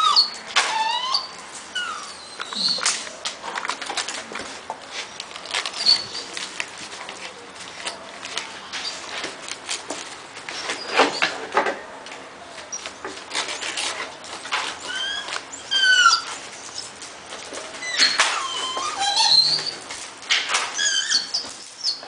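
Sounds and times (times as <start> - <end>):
high puppy whines: 0.0 - 3.0, 14.6 - 17.0, 17.7 - 19.9, 20.7 - 22.0
puppies rustling newspaper: 0.0 - 22.0.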